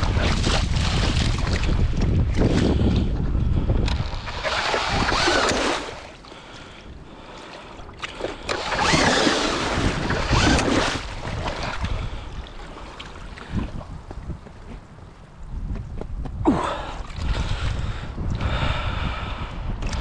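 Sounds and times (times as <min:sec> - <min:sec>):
wind noise on microphone: 0:00.0 - 0:07.2, 0:07.9 - 0:20.0
cordless drill spinning ice auger: 0:03.8 - 0:06.2, 0:08.2 - 0:12.0.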